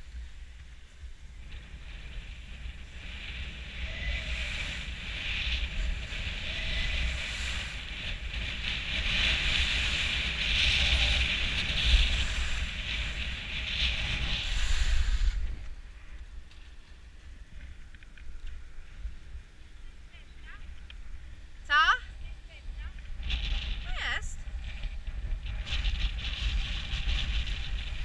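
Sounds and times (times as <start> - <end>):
skis scraping over snow: 0.0 - 15.8
wind rumbling on microphone: 0.0 - 28.0.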